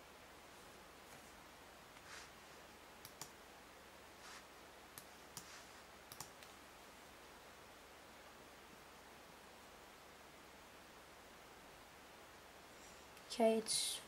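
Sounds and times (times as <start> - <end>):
low hiss: 0.0 - 14.0
soft brushing sounds: 0.4 - 2.8, 4.1 - 7.1
computer mouse clicks: 3.0 - 3.4, 5.0 - 5.5, 6.1 - 6.6.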